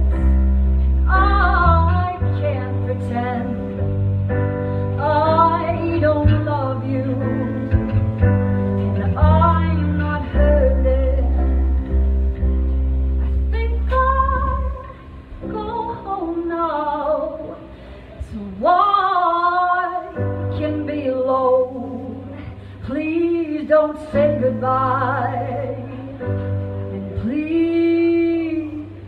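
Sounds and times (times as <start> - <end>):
low held bass notes: 0.0 - 17.3
sustained keyboard chords: 0.0 - 17.3
woman singing with vibrato: 1.0 - 3.9, 5.0 - 8.2, 8.9 - 11.9, 13.2 - 29.0.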